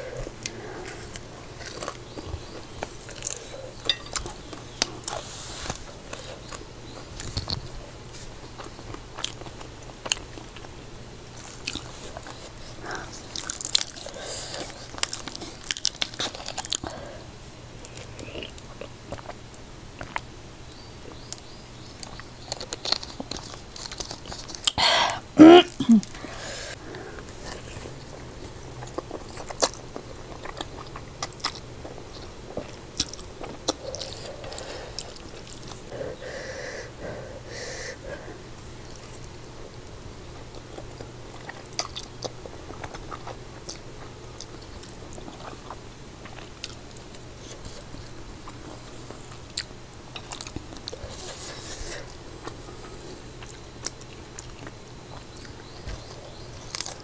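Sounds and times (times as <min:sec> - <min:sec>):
faint low hum: 0:00.0 - 0:57.0
chewing and slurping noodles: 0:26.3 - 0:36.3.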